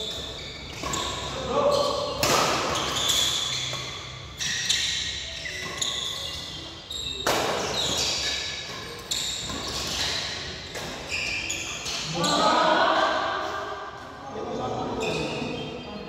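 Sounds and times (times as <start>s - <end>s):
rackets striking shuttlecock: 2.0s - 4.0s.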